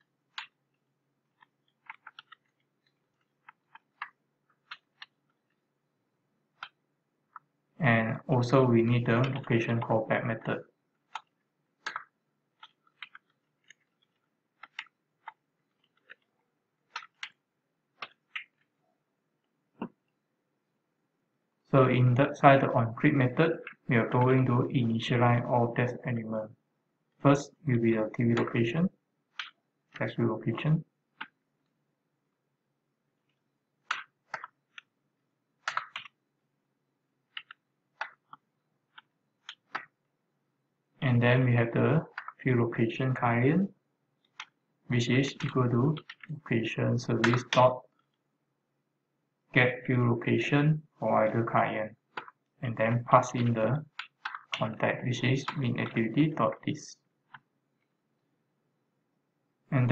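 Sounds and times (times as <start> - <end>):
keyboard typing: 1.4 - 5.2, 11.1 - 16.3, 16.9 - 17.4, 33.8 - 34.9, 35.6 - 36.2, 37.3 - 39.9, 45.2 - 46.4, 47.1 - 47.8, 53.4 - 54.8.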